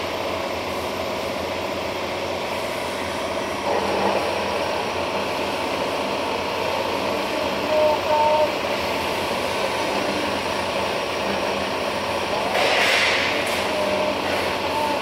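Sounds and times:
band saw and workshop machinery: 0.0 - 15.0
brief steady tones: 6.9 - 11.6.

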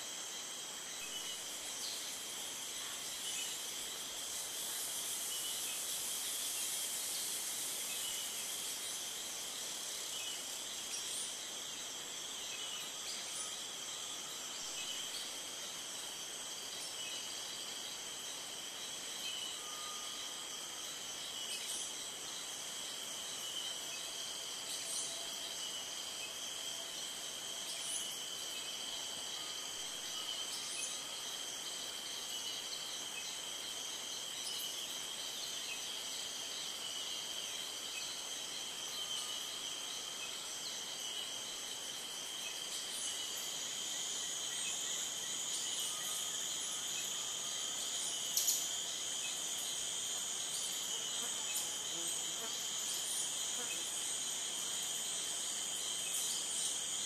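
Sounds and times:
insects trilling: 0.0 - 57.0.

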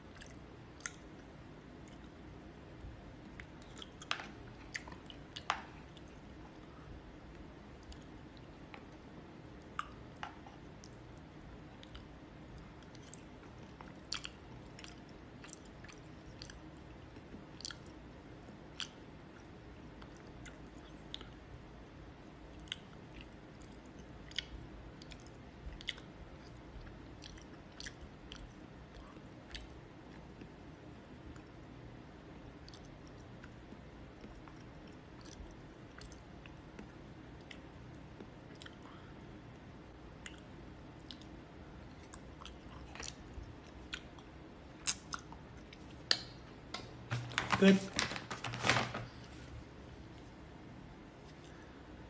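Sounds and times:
low steady hum: 0.0 - 52.0
person chewing: 0.1 - 2.2, 3.2 - 21.4, 22.6 - 30.6, 32.6 - 39.1, 40.2 - 47.0.

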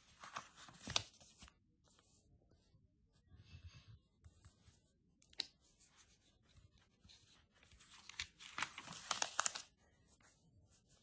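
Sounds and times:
glossy pages rustling: 0.0 - 1.5, 5.9 - 9.8.

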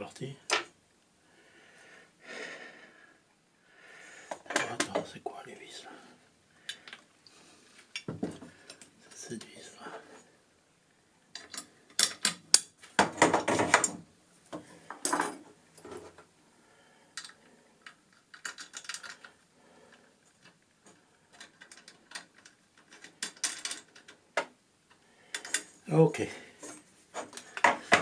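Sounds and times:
metal parts clinking and rattling: 17.2 - 19.3, 21.3 - 24.2, 25.3 - 25.8.

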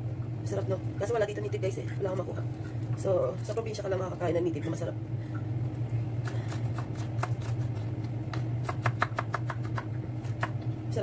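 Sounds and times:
steady low hum: 0.0 - 11.0
knife chopping on wooden board: 6.2 - 10.6.

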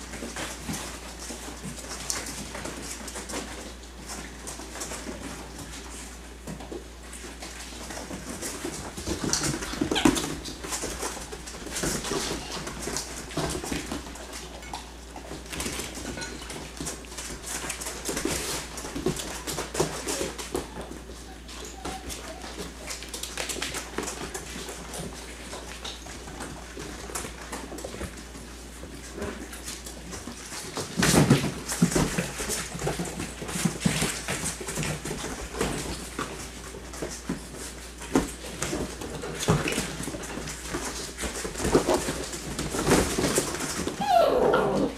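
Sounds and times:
paws pattering on bare floor: 0.0 - 44.9
puppies scuffling: 0.0 - 44.9
puppy growls: 44.0 - 44.9
puppy yelps: 44.0 - 44.9.

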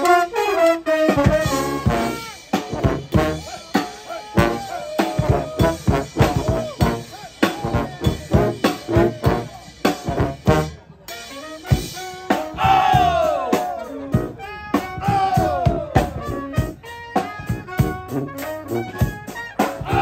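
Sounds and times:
brass band playing: 0.0 - 20.0
snare and bass drums: 1.0 - 20.0
shouted voices sliding down: 3.5 - 7.6, 12.4 - 14.0, 14.7 - 16.1, 19.8 - 20.0.

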